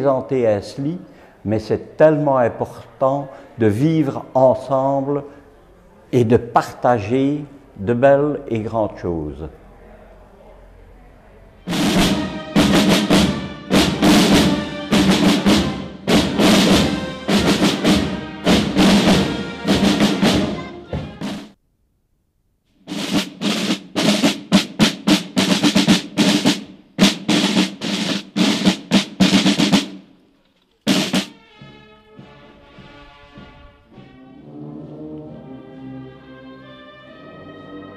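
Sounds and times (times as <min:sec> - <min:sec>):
marching snare drums: 0:11.7 - 0:21.6, 0:22.9 - 0:30.2, 0:30.8 - 0:34.2.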